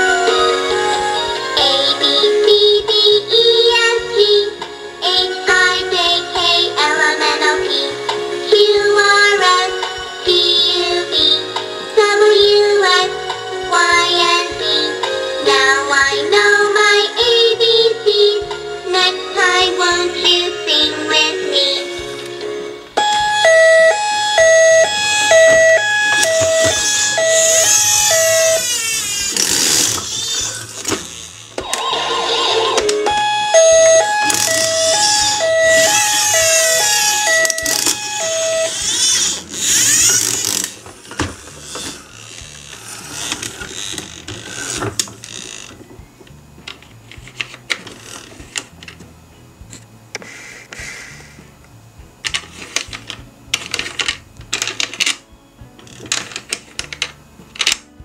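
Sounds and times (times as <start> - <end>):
toy ambulance hi-lo siren: 23.0 - 30.6, 31.6 - 40.6.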